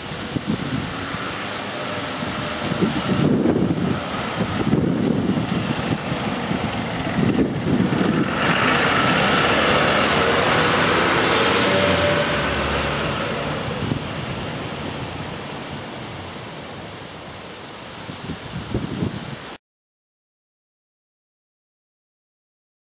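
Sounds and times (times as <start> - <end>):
fire engine driving past: 0.0 - 17.5
wind gusts on microphone: 0.0 - 19.6.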